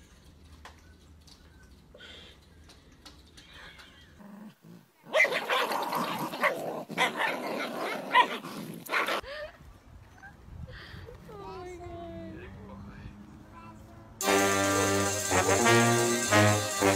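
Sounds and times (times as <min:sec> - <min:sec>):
dogs growling: 0:04.0 - 0:09.2
dogs barking: 0:05.1 - 0:09.2.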